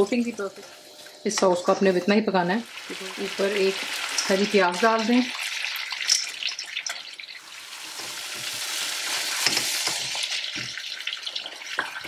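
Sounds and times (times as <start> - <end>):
chicken sizzling in a wok: 2.6 - 12.0.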